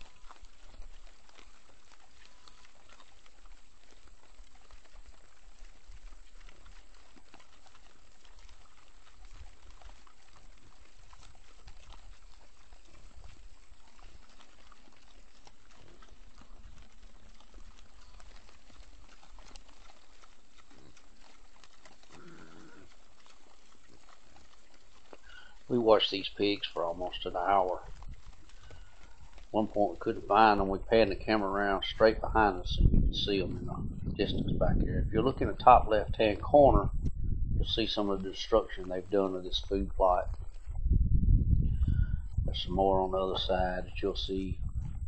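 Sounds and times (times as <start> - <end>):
small clicks and rustles: 0.0 - 30.3.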